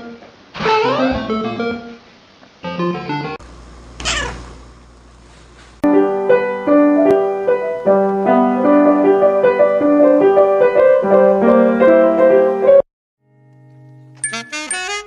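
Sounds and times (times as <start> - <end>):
piano melody: 5.8 - 15.0.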